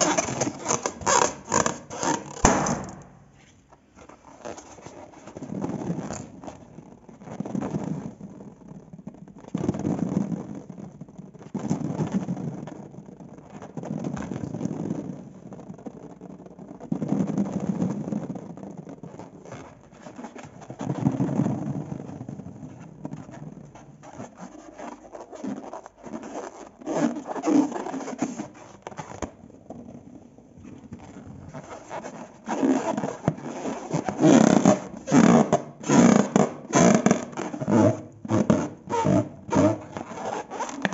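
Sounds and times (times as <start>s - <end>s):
wet crackly slime scraping: 0.0s - 40.9s.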